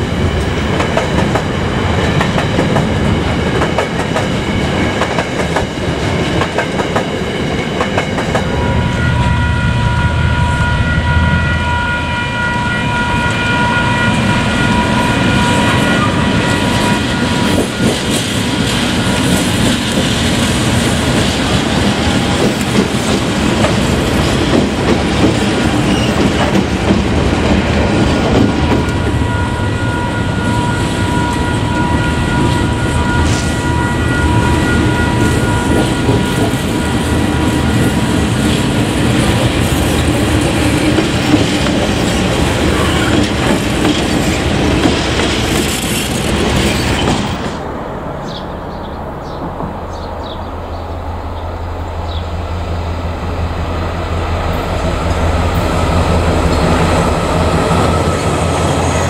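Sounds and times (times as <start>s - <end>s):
train wheels clickety-clack: 0.0s - 8.6s, 15.4s - 29.2s, 32.3s - 33.8s, 34.4s - 47.6s
diesel locomotive high whine: 0.0s - 59.0s.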